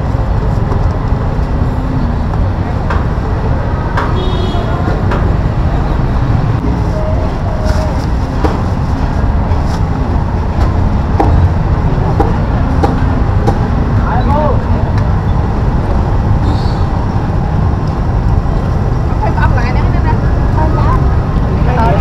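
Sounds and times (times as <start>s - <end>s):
low traffic rumble: 0.0s - 22.0s
people talking: 19.1s - 22.0s.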